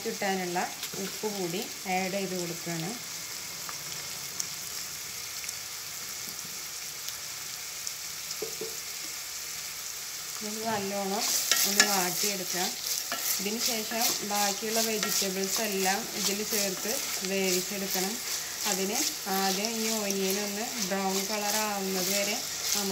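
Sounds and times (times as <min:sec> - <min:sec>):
onions sizzling in hot oil: 0:00.0 - 0:22.9
spatula scraping pot: 0:10.7 - 0:22.9.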